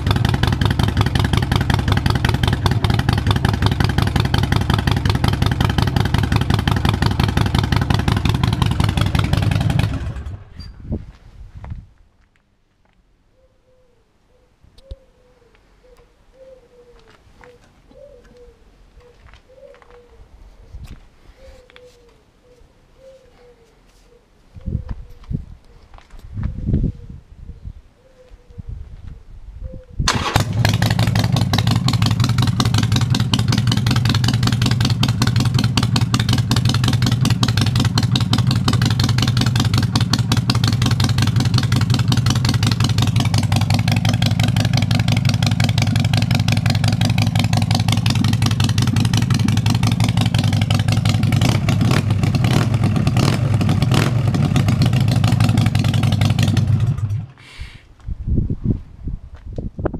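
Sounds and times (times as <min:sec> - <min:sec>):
motorcycle engine idling: 0:00.0 - 0:10.6, 0:30.1 - 0:57.4.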